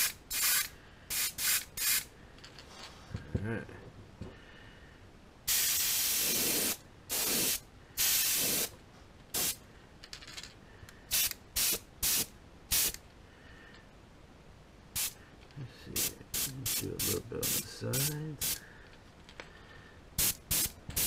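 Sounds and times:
airbrush air hiss: 0.0 - 2.1, 5.5 - 9.6, 11.1 - 13.0, 15.0 - 15.2, 15.9 - 18.6, 20.2 - 21.0.

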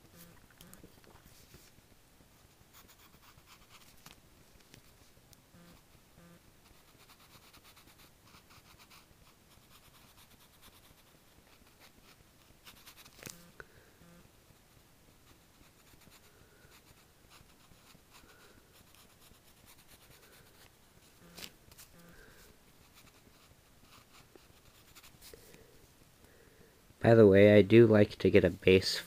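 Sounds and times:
pencil scratching on paper: 2.7 - 4.0, 6.6 - 13.2, 15.2 - 22.0, 22.8 - 25.3.

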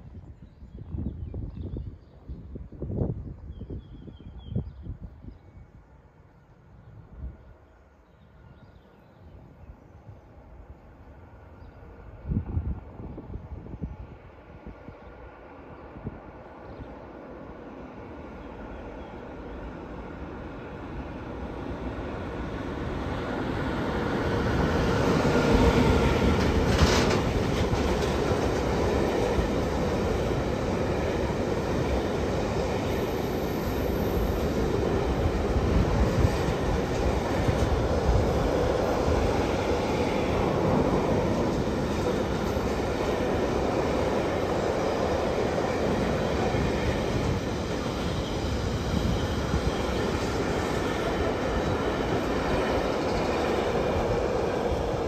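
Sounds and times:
electric locomotive passing: 10.2 - 55.0
freight train wheels clattering: 25.0 - 31.9.

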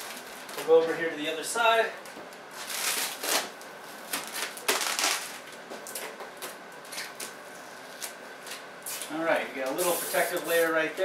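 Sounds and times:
plastic film crinkling: 0.0 - 1.0, 2.4 - 9.1.

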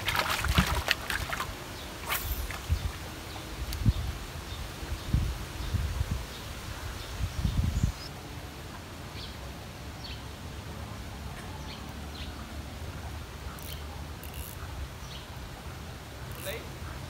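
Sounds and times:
wind rumbling on microphone: 0.0 - 8.1
small birds chirping: 1.2 - 8.1, 11.3 - 17.0.

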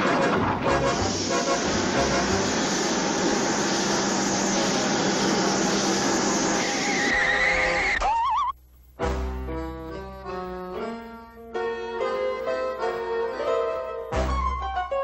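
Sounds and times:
orchestral cartoon music: 0.0 - 2.5, 11.6 - 15.0
rushing skid-like noise: 0.0 - 8.3.

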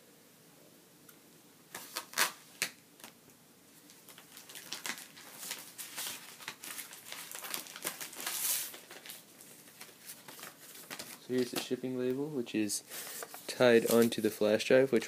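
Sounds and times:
packaging rustling and crinkling: 3.8 - 11.9, 12.9 - 14.4.

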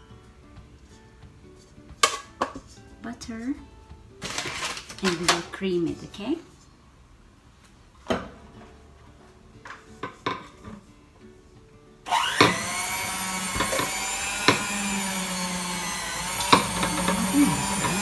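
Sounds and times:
electric hand mixer whining: 12.1 - 18.0.

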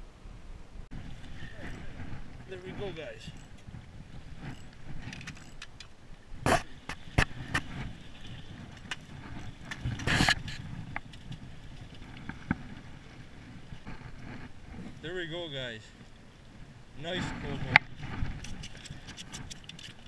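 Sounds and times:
wind on microphone: 0.0 - 15.2, 16.3 - 20.0
handling knocks and clicks: 4.4 - 7.8, 17.7 - 20.0.

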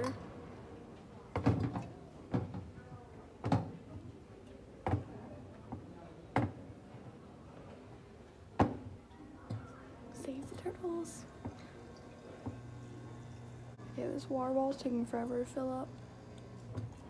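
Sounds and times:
faint steady hum: 7.1 - 17.0.

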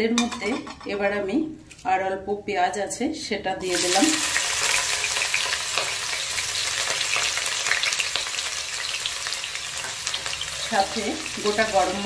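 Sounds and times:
onion sizzling in hot oil: 3.6 - 12.0.

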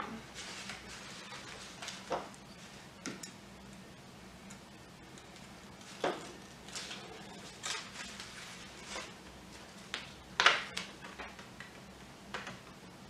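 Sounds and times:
paper rustling and scraping: 0.3 - 2.8, 5.8 - 10.1.

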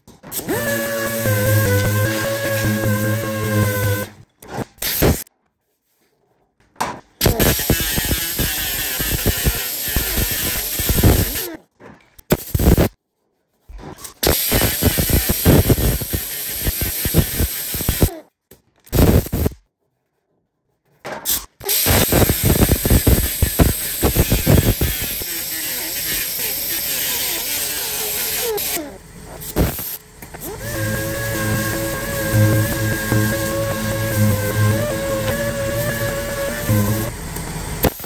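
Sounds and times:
angle grinder grinding steel: 0.4 - 4.2, 7.2 - 11.5, 21.8 - 38.0.

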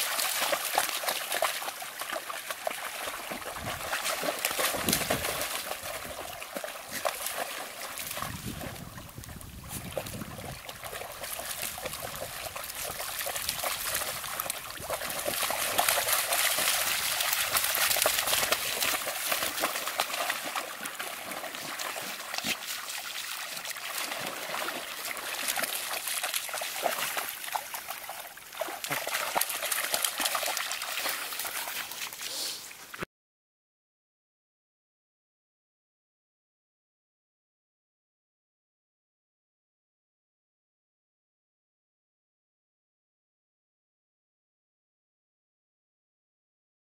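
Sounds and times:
dogs splashing through water: 0.0 - 33.0.

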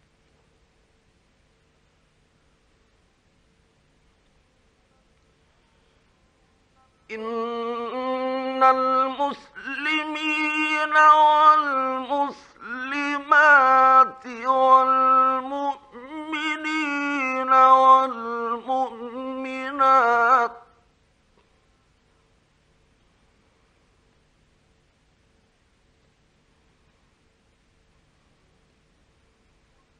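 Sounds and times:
man chanting recitation: 7.1 - 20.7.

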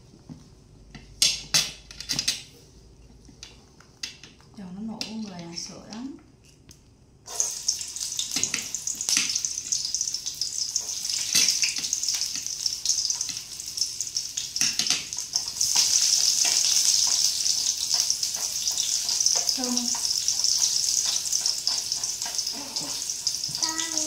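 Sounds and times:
hot oil sizzling in a pot: 7.2 - 24.0
spattering oil crackles: 7.3 - 24.0.

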